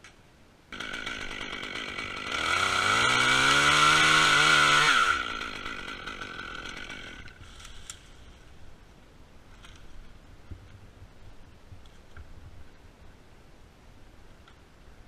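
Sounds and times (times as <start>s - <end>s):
chainsaw revving and cutting wood: 0.7s - 7.7s.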